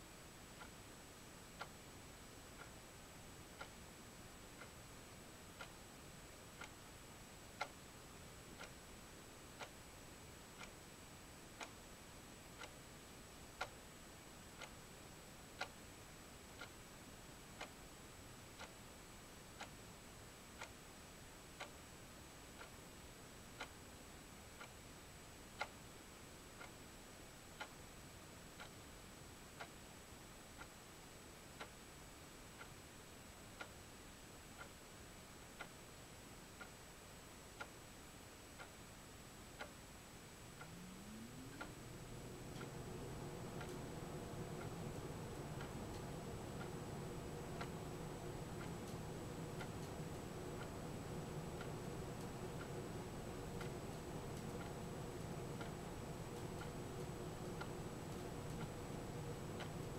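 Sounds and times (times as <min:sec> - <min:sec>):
faint even ticking: 0:40.5 - 0:59.9
high-pitched whine: 0:40.6 - 0:59.9.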